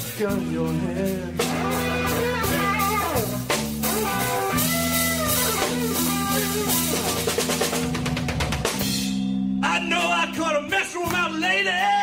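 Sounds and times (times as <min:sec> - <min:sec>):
drum kit: 0:00.0 - 0:12.0
rock band playing: 0:00.0 - 0:12.0
lead guitar bending notes: 0:01.4 - 0:10.0.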